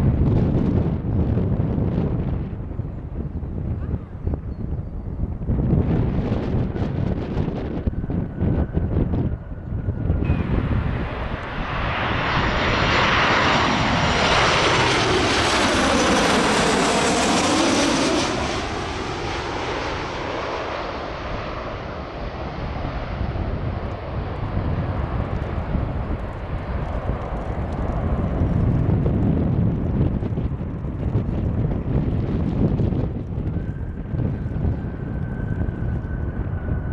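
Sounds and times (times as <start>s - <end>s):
jet airliner passing overhead: 0.0s - 36.9s.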